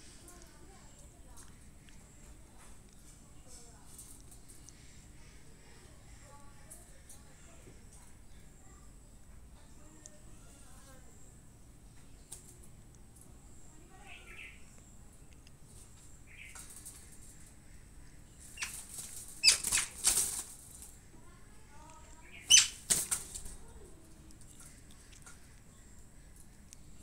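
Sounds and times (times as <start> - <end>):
wire-mesh cage rattling: 18.4 - 21.0, 22.4 - 23.6.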